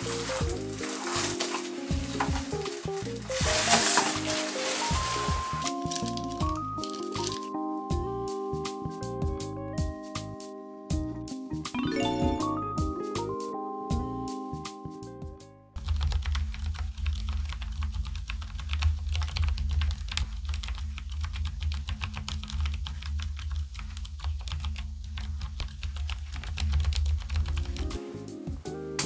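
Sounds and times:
mechanical keyboard typing: 0:00.0 - 0:07.6, 0:15.8 - 0:28.0.

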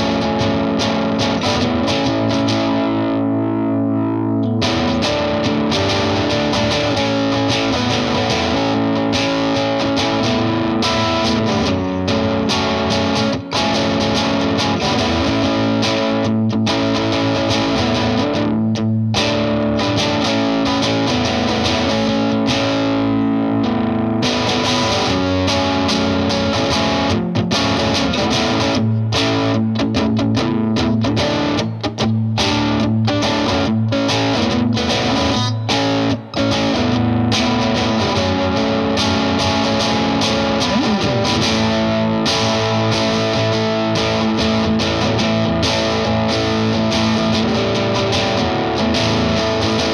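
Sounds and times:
overdriven electric guitar chords: 0:00.0 - 0:49.9.

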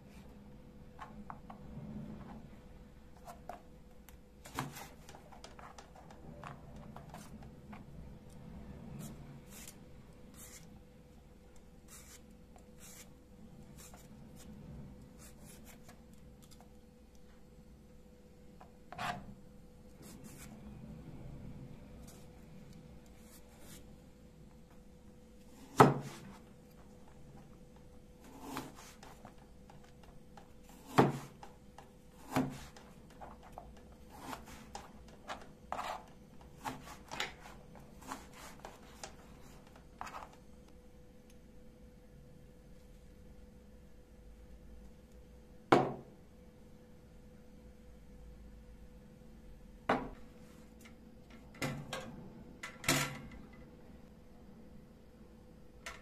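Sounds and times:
faint hum: 0:00.0 - 0:56.0
peeler scraping eggplant skin: 0:09.0 - 0:10.7
knife slicing on cutting board: 0:28.2 - 0:29.1.

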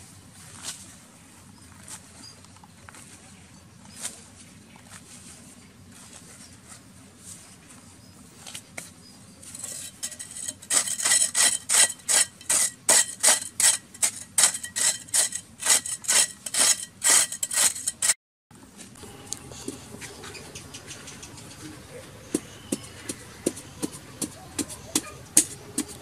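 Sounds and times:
metal blade scraping dry soil: 0:09.4 - 0:18.2.

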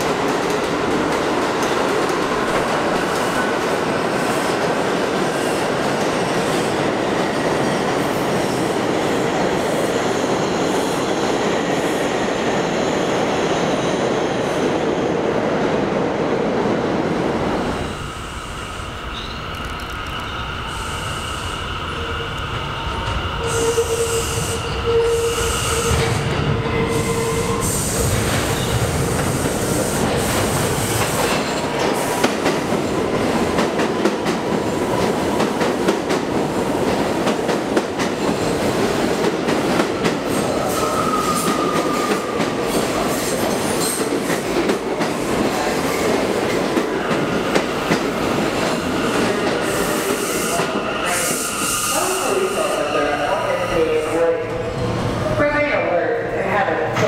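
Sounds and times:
train rumbling: 0:00.0 - 0:57.0
train wheels squealing: 0:17.9 - 0:28.8, 0:40.3 - 0:42.4, 0:48.8 - 0:54.2.

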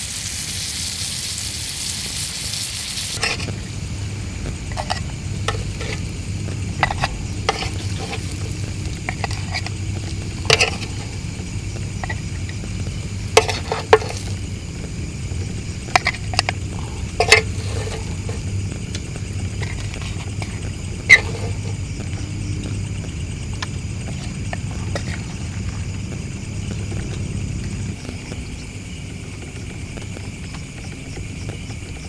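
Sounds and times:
food sizzling: 0:00.0 - 0:29.3
metal spoon scraping grill pan: 0:03.1 - 0:03.6, 0:04.7 - 0:12.6, 0:13.2 - 0:14.5, 0:15.8 - 0:18.5, 0:19.6 - 0:21.8
steady low rumble: 0:03.2 - 0:32.0.

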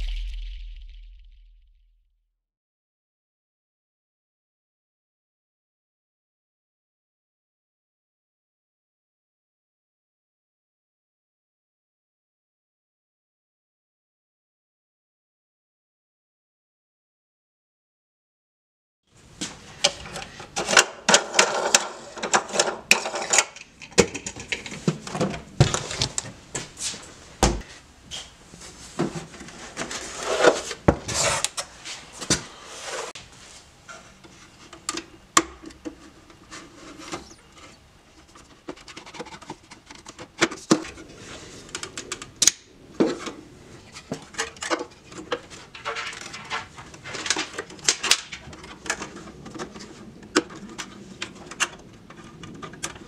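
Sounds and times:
clicks and knocks of handling parts: 0:19.4 - 0:26.7, 0:33.8 - 0:53.0.

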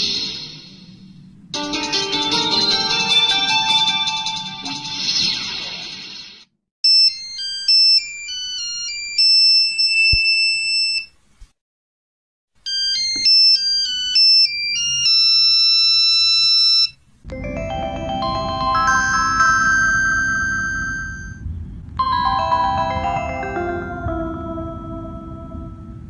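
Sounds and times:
phone power-on jingle: 0:01.6 - 0:05.2, 0:17.3 - 0:21.4, 0:22.0 - 0:26.0.

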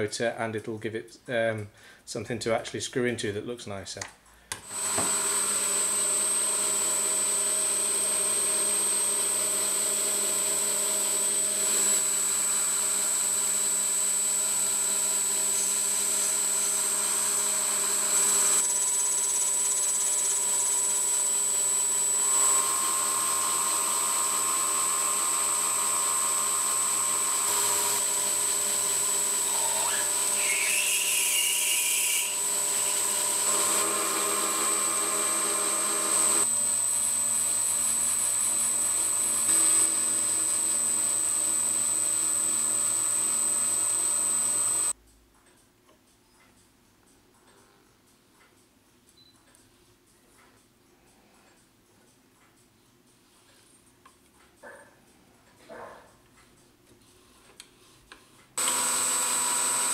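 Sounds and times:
lathe whining: 0:04.6 - 0:45.0, 0:58.6 - 0:59.9
short rising squeal: 0:29.5 - 0:32.4.

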